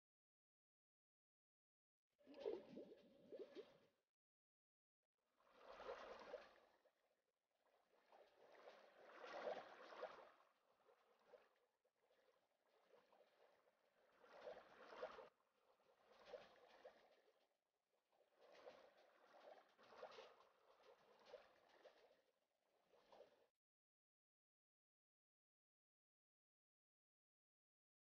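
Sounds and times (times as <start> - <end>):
water swishing and trickling: 2.2 - 4.0, 5.3 - 23.6.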